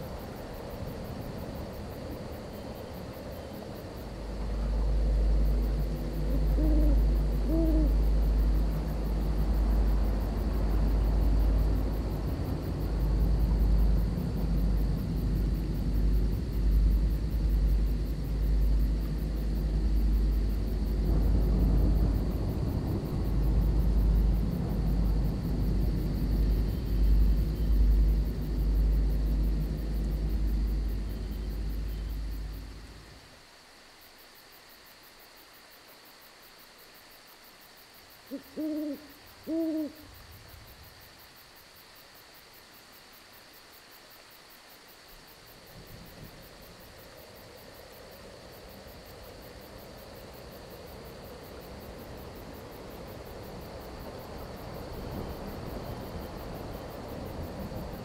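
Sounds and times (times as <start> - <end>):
crickets trilling: 0.0 - 58.0
soft hiss: 0.0 - 58.0
thunder rumbling: 4.2 - 33.2
owl hooting: 5.5 - 8.7, 38.3 - 40.2.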